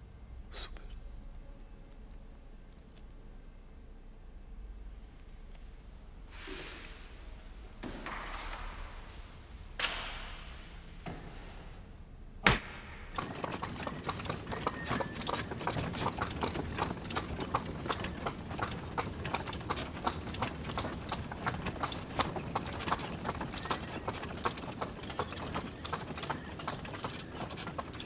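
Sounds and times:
sharp knock: 12.4s - 13.2s
hooves clip-clopping on asphalt: 13.1s - 28.0s.

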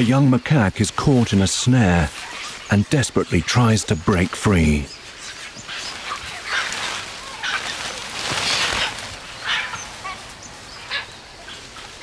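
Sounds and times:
monkeys giving harsh cries: 5.3s - 11.7s.

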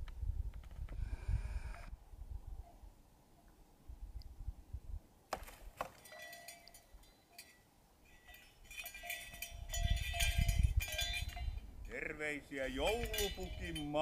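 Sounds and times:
bells jingling: 6.0s - 14.0s.

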